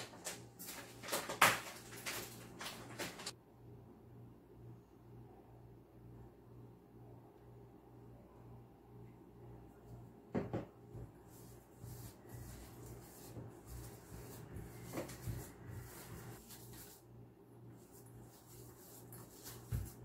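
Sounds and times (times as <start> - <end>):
hands mixing in a steel bowl: 11.3 - 17.1, 17.8 - 20.0.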